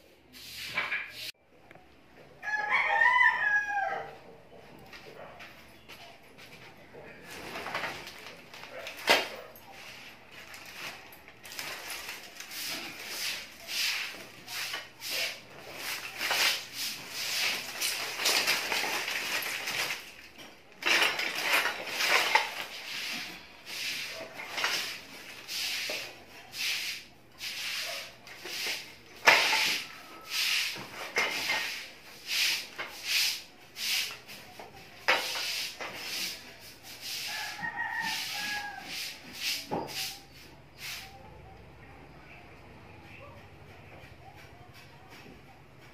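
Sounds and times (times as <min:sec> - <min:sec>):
copper wire scraping and rustling: 0:07.2 - 0:40.2.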